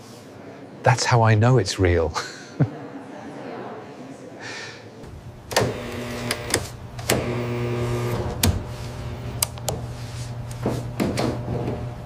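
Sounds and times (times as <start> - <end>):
machine motor hum: 5.0 - 12.0
whirring whine: 5.1 - 12.0.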